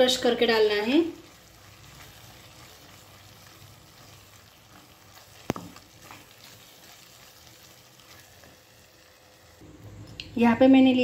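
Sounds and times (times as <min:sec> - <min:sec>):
onions frying in oil: 0:00.0 - 0:11.0
spatula scraping pan: 0:01.8 - 0:08.6.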